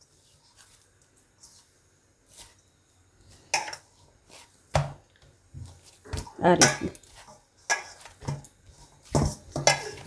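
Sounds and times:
hand kneading dough in bowl: 0.0 - 2.7, 3.3 - 10.0.

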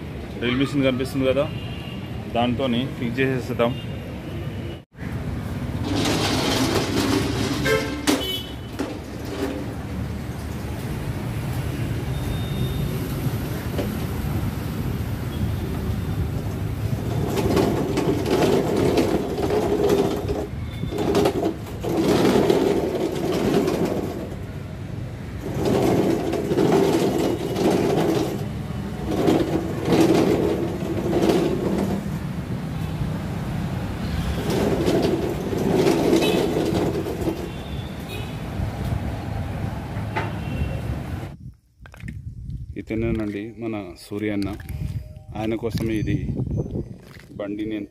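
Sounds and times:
street traffic noise: 0.0 - 47.9
caster wheels rolling on paving stones: 5.6 - 11.6, 15.8 - 32.7, 33.4 - 38.2.

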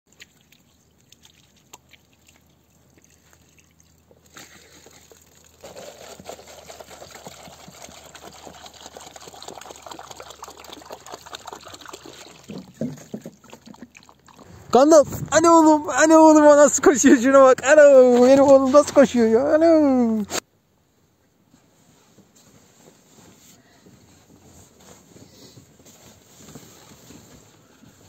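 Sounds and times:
water pouring into plastic container: 0.1 - 14.5.

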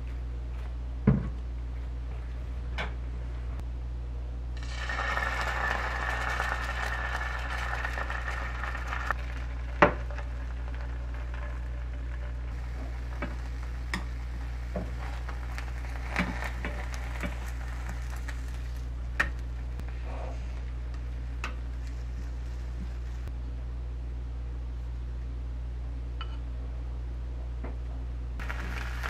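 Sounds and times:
steady low hum: 0.0 - 29.0
egg sizzling in frying pan: 4.6 - 19.9, 28.4 - 29.0.

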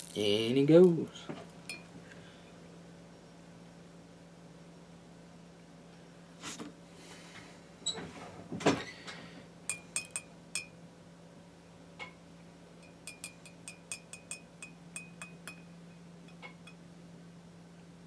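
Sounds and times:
steady low hum: 0.0 - 18.0
metal tapping on glass jar: 1.7 - 1.9, 9.7 - 10.7, 12.8 - 15.7.

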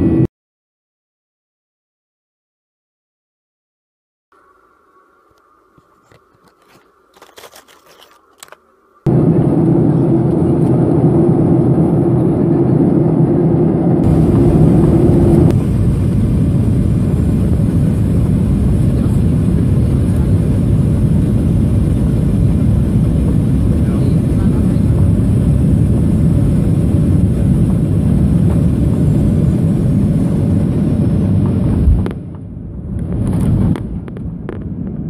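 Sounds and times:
airplane cabin jet engine rumble: 0.0 - 0.3, 5.7 - 35.0
low hum: 4.4 - 35.0.

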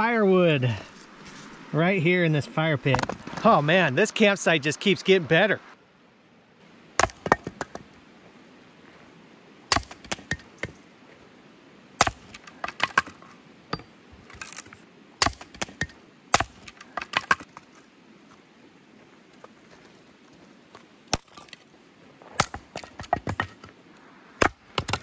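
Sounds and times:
axe chopping firewood: 7.0 - 7.9, 9.7 - 10.8, 12.0 - 17.7, 21.1 - 21.6, 22.4 - 23.7, 24.4 - 25.0
wood knocking and cracking: 7.0 - 7.9, 24.4 - 25.0.

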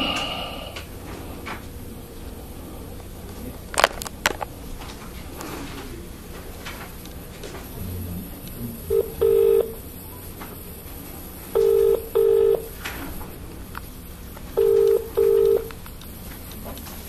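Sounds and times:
telephone ringing tone: 8.9 - 10.0, 11.5 - 12.8, 14.6 - 15.8.

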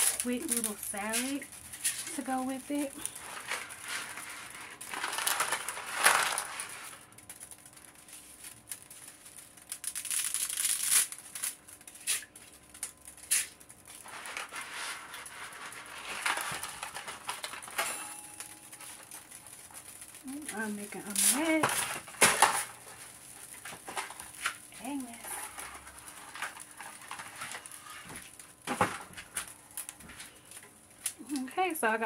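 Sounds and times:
dry pasta scraping metal pot: 0.0 - 7.1, 13.2 - 29.0.

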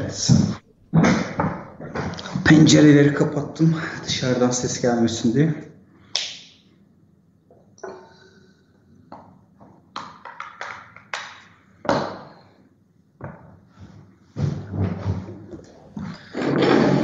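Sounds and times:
objects tapping on a desk: 9.1 - 12.3.

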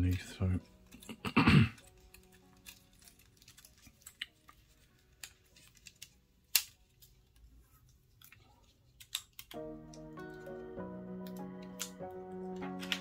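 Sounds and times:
fingers clicking and tapping cable: 8.2 - 13.0.

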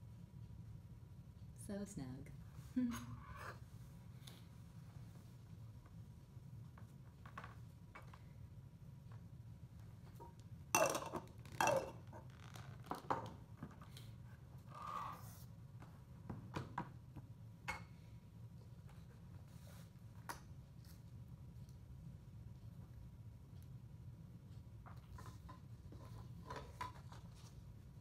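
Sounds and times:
plastic toys and cups clattering: 10.2 - 13.4, 25.2 - 27.4.

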